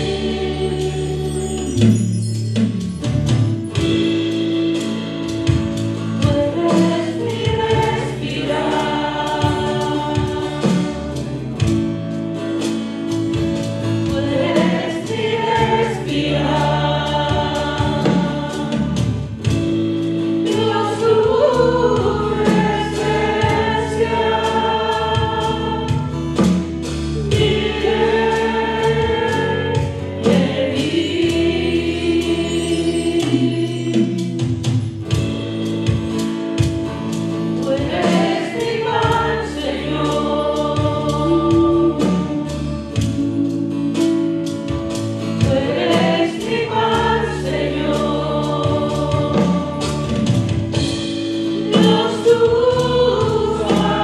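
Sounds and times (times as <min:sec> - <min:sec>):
women singing into microphones: 0:00.0 - 0:01.9, 0:06.2 - 0:11.4, 0:14.0 - 0:19.2, 0:20.4 - 0:26.3, 0:27.2 - 0:34.3, 0:37.6 - 0:44.6, 0:45.2 - 0:50.8, 0:51.6 - 0:54.0
electric bass guitar: 0:02.8 - 0:54.0.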